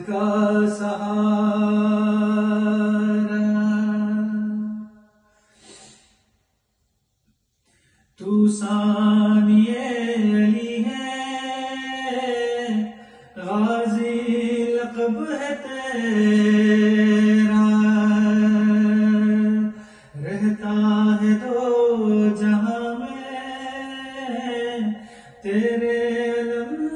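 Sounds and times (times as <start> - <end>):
man chanting a lament: 8.2 - 26.9.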